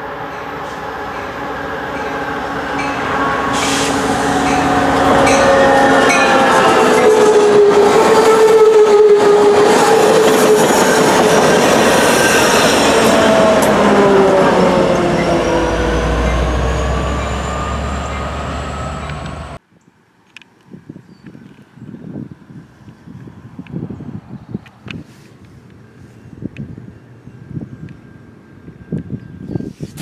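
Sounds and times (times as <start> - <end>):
deep diesel locomotive rumble: 0.0 - 19.6
train wheels rushing on rails: 0.0 - 19.6.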